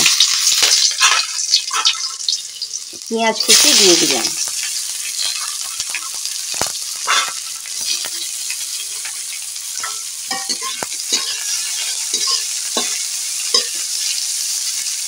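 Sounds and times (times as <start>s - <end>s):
onions sizzling in hot oil: 0.0s - 15.0s
metal spatula scraping a pan: 0.5s - 2.3s, 4.6s - 14.6s.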